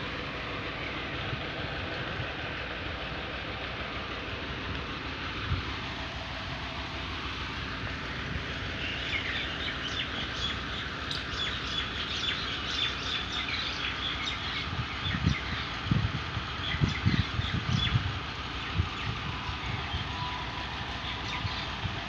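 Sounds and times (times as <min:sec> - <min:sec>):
small birds chirping: 0:08.6 - 0:22.0.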